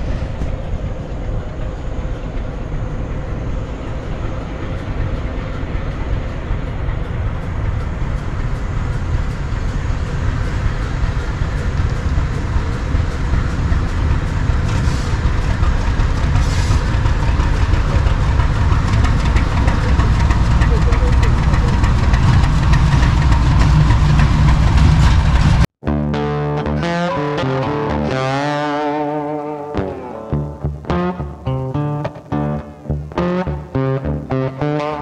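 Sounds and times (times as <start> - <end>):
wheels clattering on rails: 0.0 - 25.7
diesel locomotive rumble: 0.0 - 35.0.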